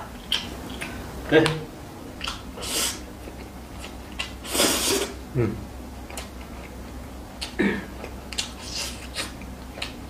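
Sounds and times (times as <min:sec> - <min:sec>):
eating sounds with mouth clicks: 0:00.1 - 0:01.6, 0:02.2 - 0:05.1, 0:06.0 - 0:06.8, 0:07.4 - 0:10.0
person slurping noodles: 0:04.4 - 0:05.2
person humming briefly: 0:05.3 - 0:05.7.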